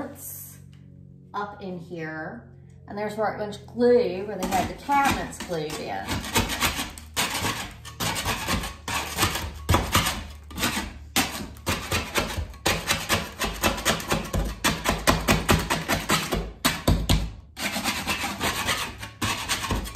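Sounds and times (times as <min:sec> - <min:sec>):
putty knife scraping wall: 0:04.2 - 0:19.9.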